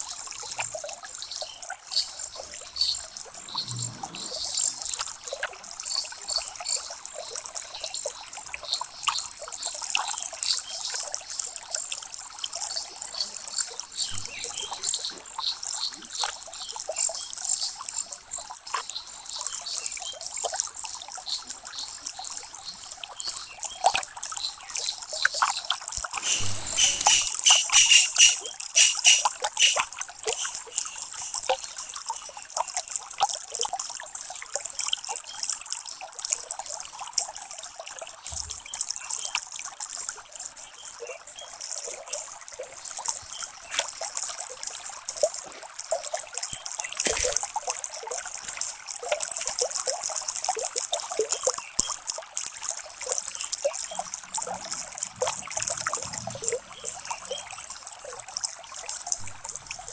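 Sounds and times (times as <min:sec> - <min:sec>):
pen scratching on paper: 0:26.2 - 0:29.8.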